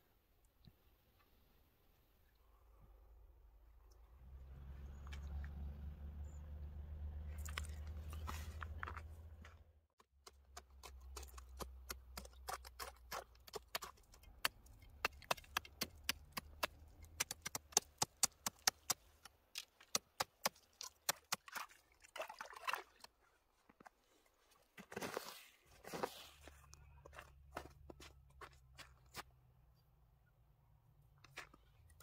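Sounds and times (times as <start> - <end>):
boots crunching on icy snow: 7.4 - 9.6, 23.8 - 29.3
knife stabbing into ice: 10.8 - 19.0
scraping on ice: 23.7 - 29.3.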